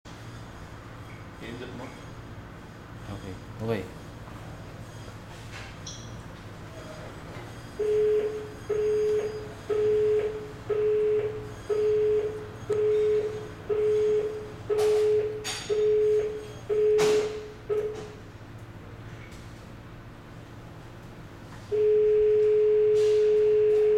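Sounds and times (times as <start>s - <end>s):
door lock buzzer beeping: 7.8s - 18.2s, 21.7s - 23.9s.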